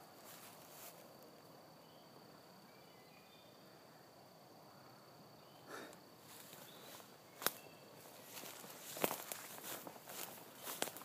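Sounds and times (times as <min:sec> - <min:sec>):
footstep rustling in grass: 0:00.2 - 0:01.1, 0:06.2 - 0:11.0.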